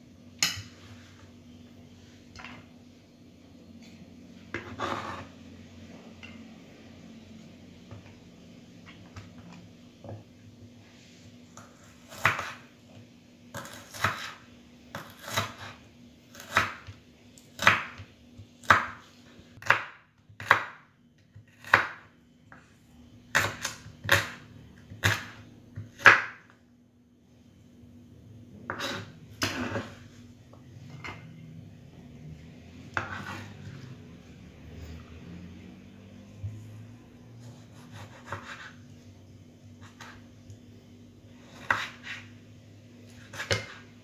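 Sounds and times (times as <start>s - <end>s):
knife slicing on wooden board: 33.0s - 33.5s.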